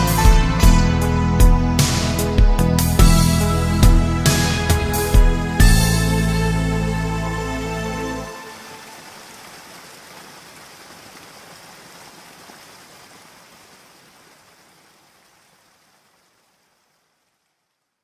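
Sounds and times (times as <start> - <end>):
hiss of falling rain: 4.3 - 18.0.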